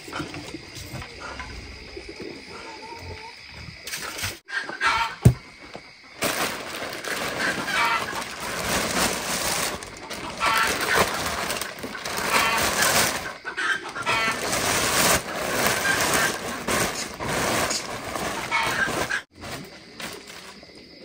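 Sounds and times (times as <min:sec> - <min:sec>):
chickens clucking: 0:00.0 - 0:21.0
steady rustling background: 0:05.3 - 0:20.6.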